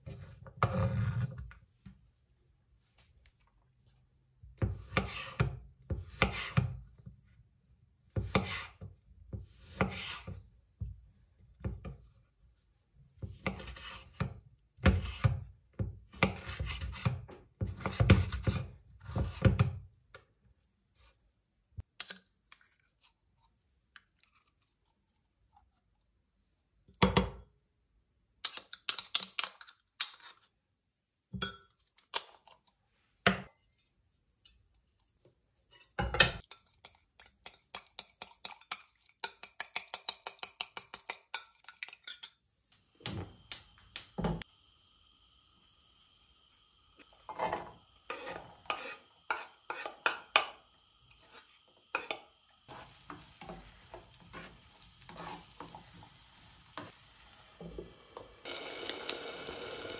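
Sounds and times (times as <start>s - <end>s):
spoon clinking in a cup: 36.4s - 42.4s.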